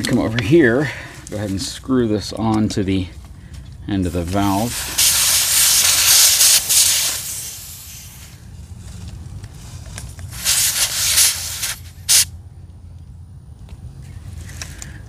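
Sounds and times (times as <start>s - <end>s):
air hissing from tire valve: 4.4s - 8.5s, 10.3s - 12.4s.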